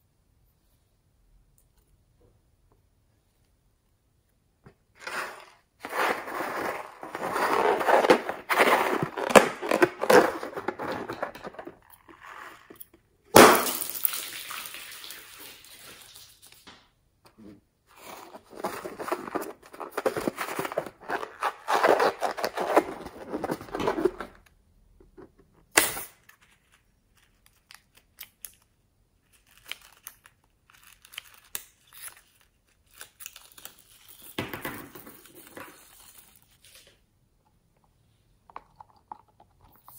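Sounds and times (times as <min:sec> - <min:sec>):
rubber balloon squeezed and crinkling: 0:04.9 - 0:13.8, 0:17.9 - 0:24.4.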